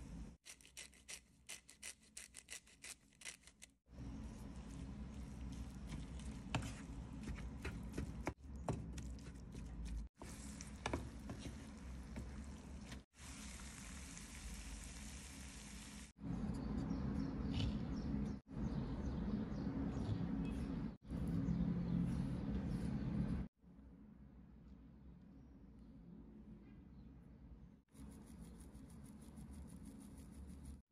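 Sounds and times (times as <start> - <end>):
meat and onions sizzling in a pan: 13.1 - 16.1.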